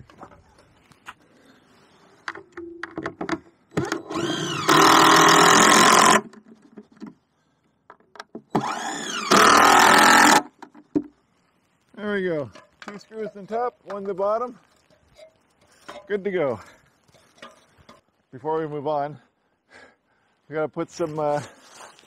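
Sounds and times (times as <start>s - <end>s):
power driver driving screws: 3.7s - 6.3s, 8.5s - 10.5s.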